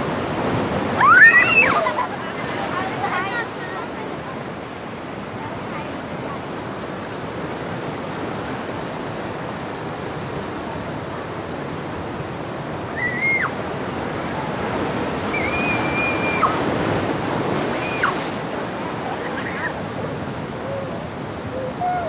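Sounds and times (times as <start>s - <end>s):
surf breaking over rocks: 0.0s - 5.4s, 12.1s - 22.0s.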